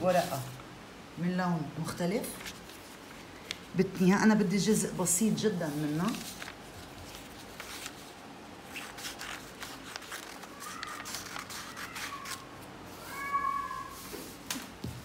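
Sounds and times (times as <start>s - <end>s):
paper rustling: 0.0s - 0.6s, 2.2s - 3.2s, 5.3s - 14.6s
scissors snipping paper: 8.7s - 12.5s
high-pitched cry or squeak: 10.5s - 14.0s.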